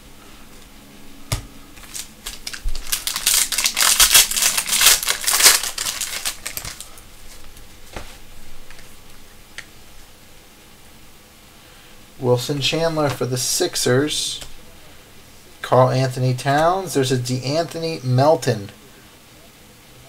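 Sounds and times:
foil wrapper crinkling: 0:01.8 - 0:07.6.

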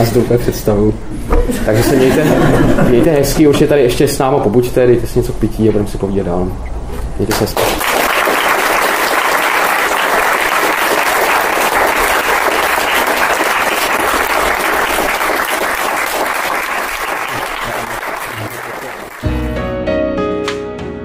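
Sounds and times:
audience applauding: 0:07.3 - 0:19.5.

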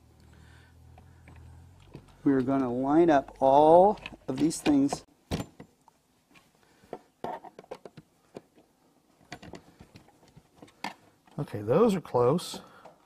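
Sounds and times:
wooden panels clicking and knocking: 0:01.0 - 0:11.4.

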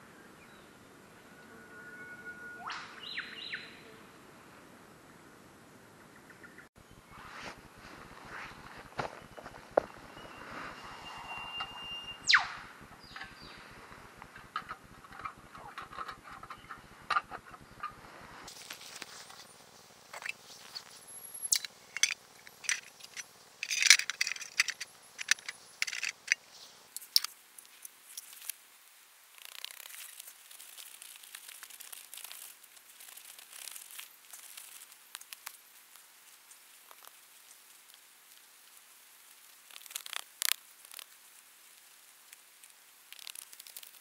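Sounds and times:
soft rustle and patter: 0:07.2 - 0:10.8, 0:13.1 - 0:44.0
gravel crunching and clattering: 0:07.6 - 0:10.9, 0:12.8 - 0:28.6.

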